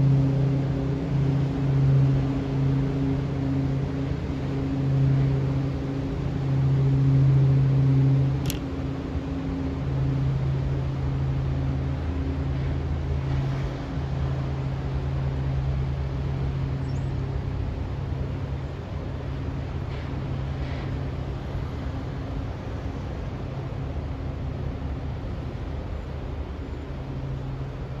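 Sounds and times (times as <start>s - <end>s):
low mechanical hum: 0.0s - 28.0s
sharp click: 8.4s - 8.7s.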